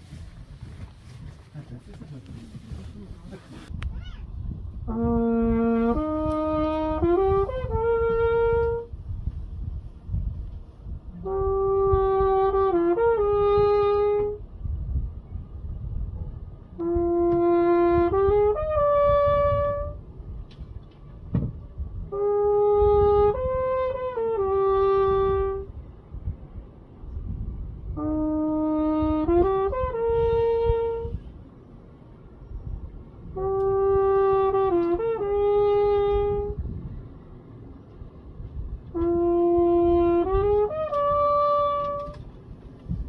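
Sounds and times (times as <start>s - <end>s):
low rumble: 0.0s - 43.0s
trumpet phrases: 4.8s - 8.9s, 11.1s - 14.4s, 16.8s - 20.0s, 22.1s - 25.7s, 28.0s - 31.2s, 33.4s - 36.6s, 38.9s - 42.2s.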